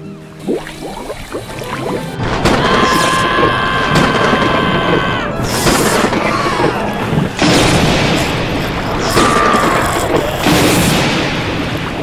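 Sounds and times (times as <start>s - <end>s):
churning water: 0.0s - 12.0s
rushing rain: 1.6s - 12.0s
booming crashes: 2.2s - 6.3s, 7.0s - 12.0s.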